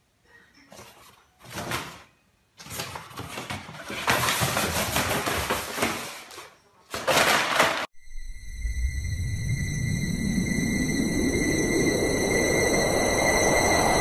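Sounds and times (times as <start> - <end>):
paper bag crinkling on wooden floor: 0.7 - 7.9.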